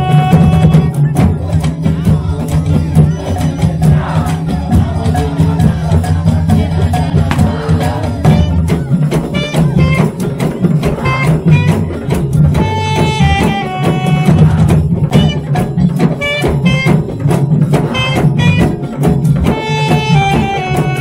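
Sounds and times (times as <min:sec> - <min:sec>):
crowd shouting: 0:00.0 - 0:08.9
drums beating fast: 0:00.0 - 0:21.0.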